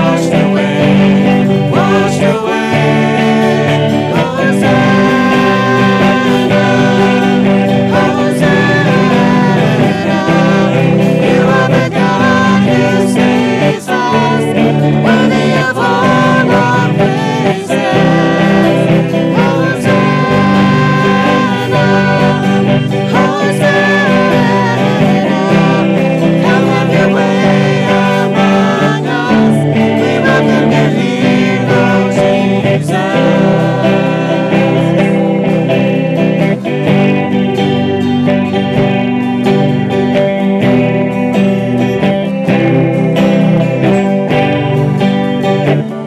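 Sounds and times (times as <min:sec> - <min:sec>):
strummed guitars: 0:00.0 - 0:46.0
voices singing: 0:00.0 - 0:46.0.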